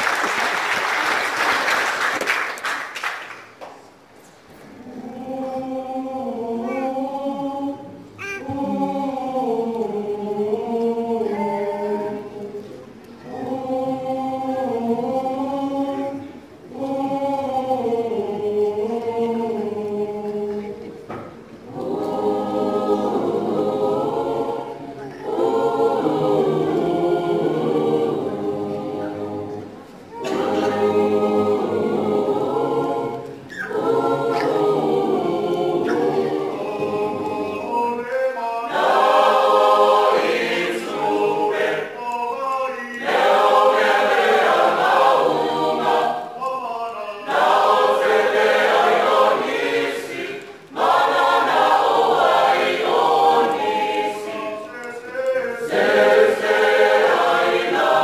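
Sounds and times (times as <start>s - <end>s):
choir singing in harmony: 4.7s - 58.0s.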